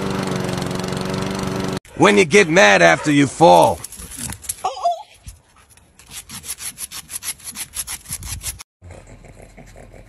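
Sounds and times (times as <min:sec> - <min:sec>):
cat claws scraping on concrete: 0:05.6 - 0:08.6.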